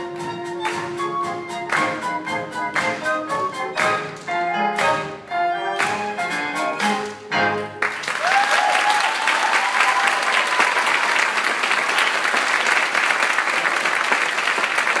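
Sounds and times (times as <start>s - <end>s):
audience applauding: 0.1s - 15.0s
crowd cheering: 7.8s - 15.0s.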